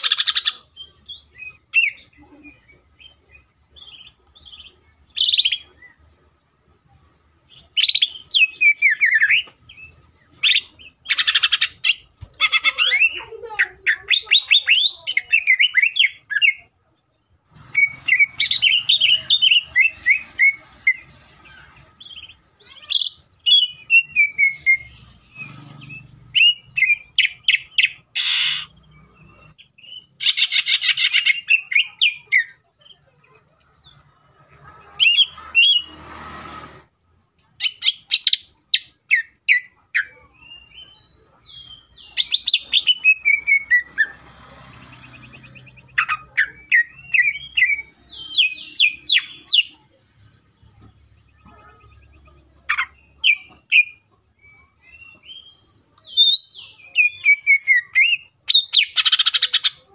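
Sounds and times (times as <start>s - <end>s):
bird singing whistled notes and trills: 0.0s - 6.1s, 7.4s - 16.7s, 17.6s - 21.1s, 21.9s - 33.0s, 37.1s - 44.2s, 44.8s - 50.0s, 50.6s - 59.9s.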